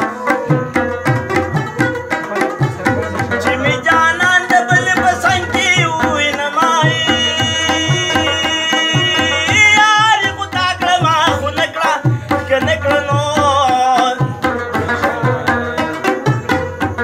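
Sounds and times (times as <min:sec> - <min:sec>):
man singing: 0:00.0 - 0:17.0
tabla drumming: 0:00.0 - 0:17.0
plucked lute melody: 0:00.9 - 0:04.7.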